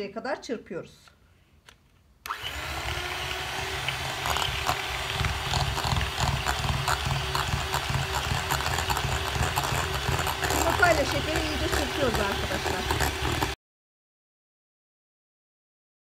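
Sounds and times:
hand mixer motor running: 2.3s - 13.6s
whisk beaters ticking against bowl: 2.9s - 13.6s.

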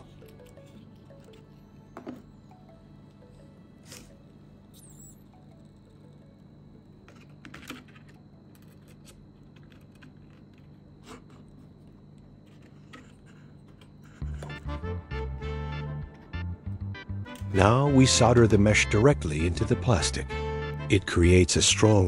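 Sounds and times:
faint steady hum: 0.0s - 22.0s
loud music: 14.6s - 21.0s.

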